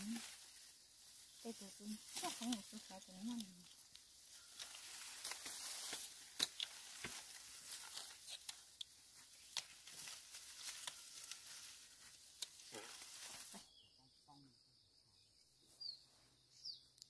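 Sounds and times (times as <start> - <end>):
dry rice stalks rustling: 0.0 - 13.7
stalks snapping: 1.9 - 13.2.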